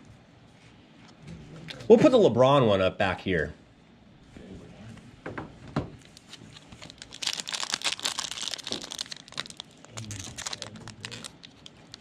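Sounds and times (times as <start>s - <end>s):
plastic wrapper crinkling: 6.2s - 12.0s.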